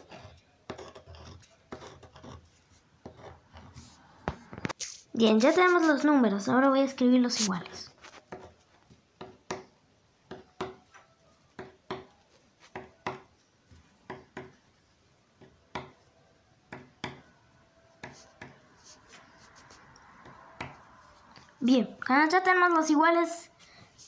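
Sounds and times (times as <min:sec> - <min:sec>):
pen writing on paper: 0:00.0 - 0:04.0.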